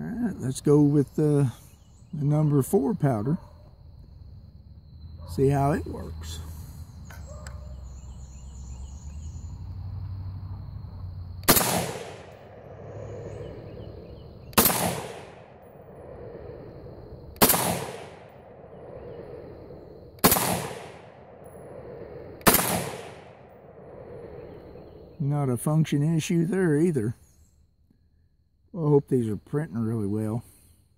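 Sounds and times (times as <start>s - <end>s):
rifle shots with echo: 11.4s - 13.8s, 14.5s - 16.2s, 17.4s - 19.1s, 20.2s - 21.8s, 22.4s - 24.0s.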